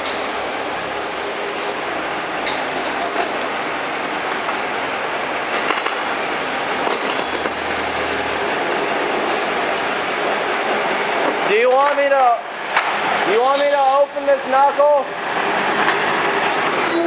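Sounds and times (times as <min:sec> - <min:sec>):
diesel locomotive running: 0:00.0 - 0:17.0.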